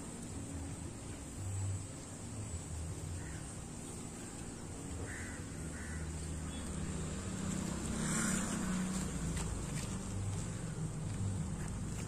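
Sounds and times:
crow cawing: 3.2 - 3.5, 5.0 - 6.6, 8.0 - 8.8.

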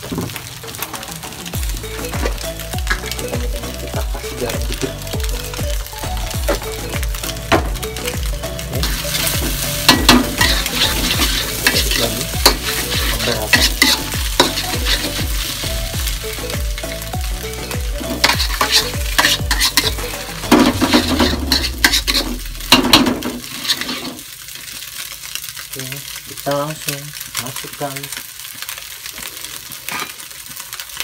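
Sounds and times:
egg sizzling in oil: 0.0 - 31.0
metal spatula scraping a wok: 8.8 - 15.9, 18.0 - 24.3.

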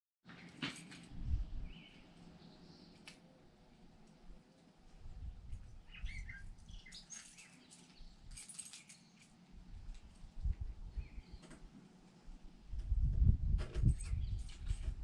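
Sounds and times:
faint low rumble: 1.1 - 2.6
small birds chirping: 1.6 - 3.2, 5.5 - 9.4, 10.9 - 11.6.

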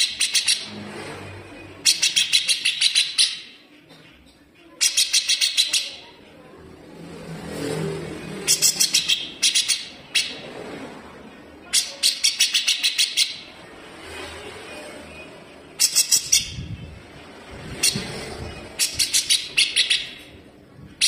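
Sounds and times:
bird singing harsh rapid notes: 0.0 - 3.6, 4.8 - 6.2, 8.3 - 10.5, 11.7 - 13.6, 15.7 - 17.0, 17.6 - 21.0.

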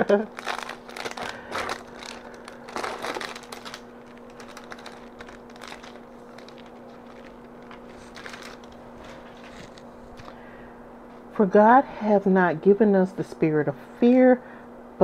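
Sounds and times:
plastic sleeve crinkling: 0.0 - 10.4.

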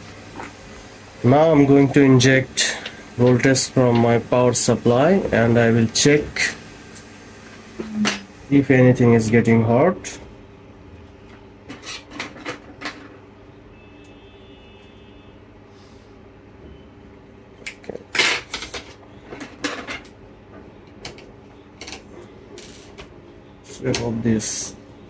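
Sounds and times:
steady low hum: 0.0 - 9.0.

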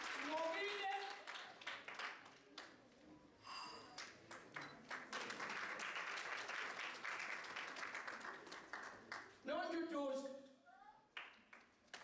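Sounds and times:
audience applause: 0.0 - 2.7, 4.0 - 9.4.

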